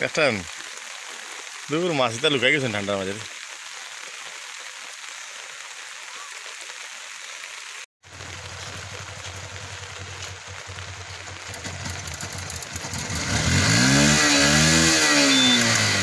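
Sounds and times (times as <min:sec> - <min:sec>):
motorcycle engine idling and revving: 0:08.1 - 0:16.0.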